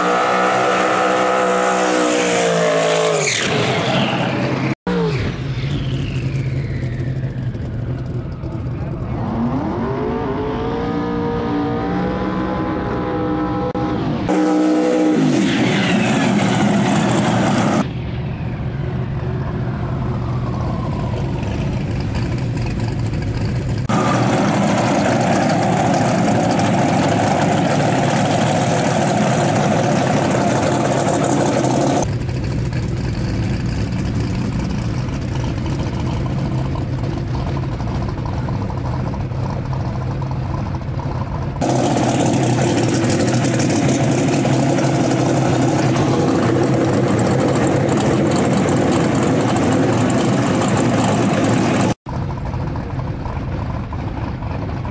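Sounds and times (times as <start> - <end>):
engine revving hard: 0.0 - 5.1
tyres spinning in burnout: 20.8 - 32.1.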